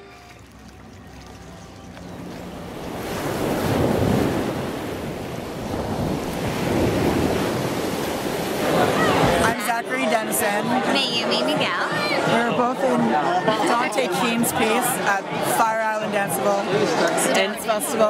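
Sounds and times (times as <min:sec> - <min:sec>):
wind blowing across microphone: 0:02.0 - 0:09.5.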